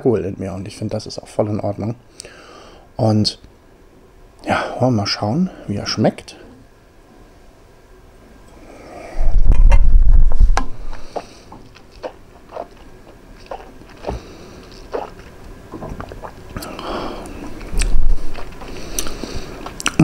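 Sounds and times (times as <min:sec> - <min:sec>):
breathy hiss: 0:02.1 - 0:02.9, 0:04.4 - 0:06.6, 0:08.5 - 0:09.3, 0:10.8 - 0:11.6, 0:13.9 - 0:15.2, 0:16.6 - 0:19.7
mouth clicks and lip smacks: 0:10.9 - 0:20.0.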